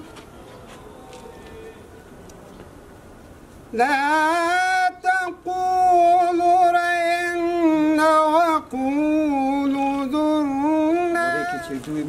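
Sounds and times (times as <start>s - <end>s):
man reciting melodically: 3.7s - 12.0s.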